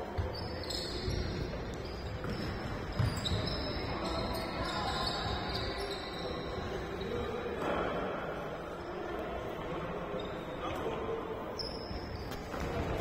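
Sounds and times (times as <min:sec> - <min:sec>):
shoe squeaks: 0:00.1 - 0:07.5, 0:10.1 - 0:10.8, 0:11.5 - 0:13.0.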